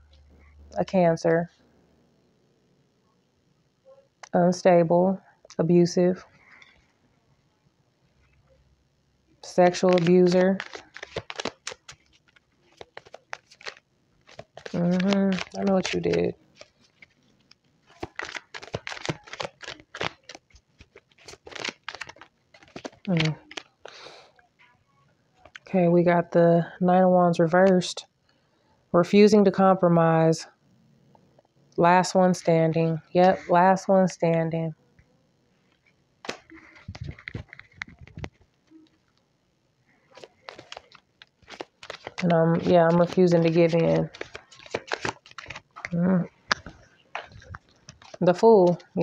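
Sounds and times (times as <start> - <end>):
cards being shuffled: 9.4 - 24.3, 35.7 - 39.0, 40.1 - 49.0.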